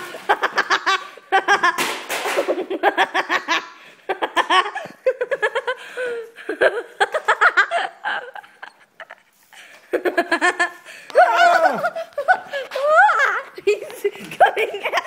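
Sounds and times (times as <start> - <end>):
hearty laughter: 2.5 - 15.0.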